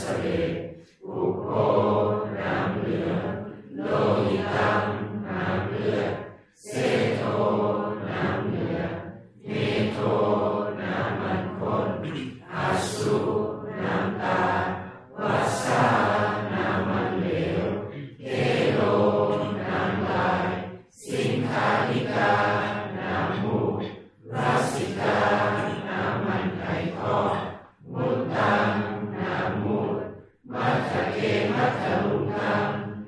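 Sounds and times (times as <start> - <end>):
voices chanting in unison: 0.0 - 33.0.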